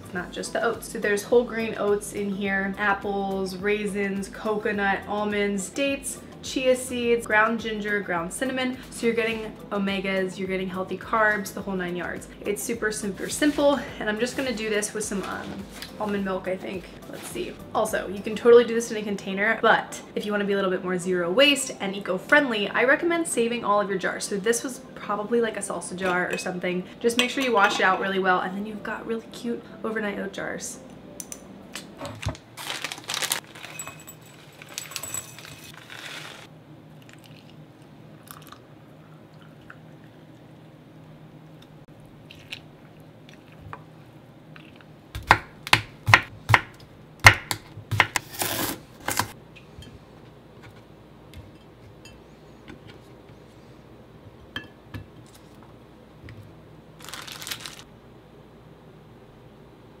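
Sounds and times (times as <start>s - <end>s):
plastic bag crinkle: 32.2s - 36.5s, 57.0s - 57.9s
handling clicks and rustles: 33.2s - 35.8s
knife chopping on wooden board: 45.2s - 48.4s.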